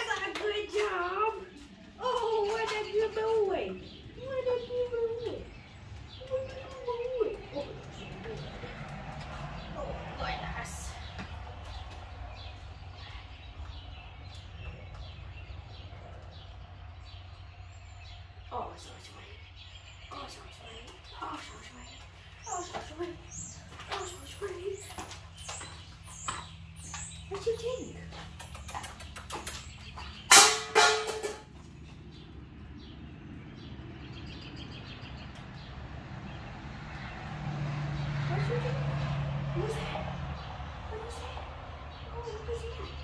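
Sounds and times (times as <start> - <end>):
light footsteps on rubber mat: 0.0 - 9.8, 20.7 - 28.4
steady low rumble: 0.0 - 30.3
loud metal clangs: 30.3 - 31.6.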